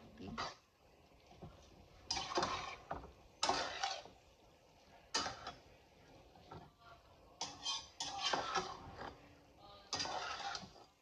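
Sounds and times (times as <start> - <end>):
utensil scraping metal pot: 2.0 - 4.2, 7.4 - 9.3, 9.9 - 11.0.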